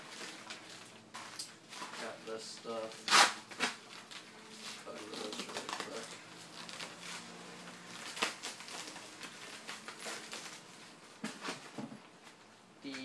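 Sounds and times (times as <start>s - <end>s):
plastic packaging rustling: 0.0s - 13.0s.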